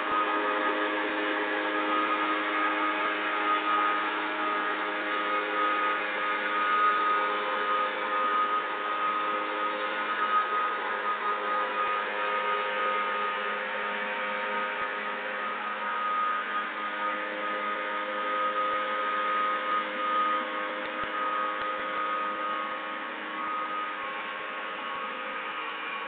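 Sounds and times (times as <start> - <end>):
small sprayer engine running: 0.0 - 26.0.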